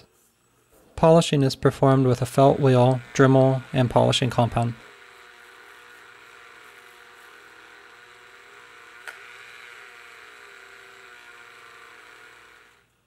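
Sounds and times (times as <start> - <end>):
rotary tool whine: 0.0 - 13.0.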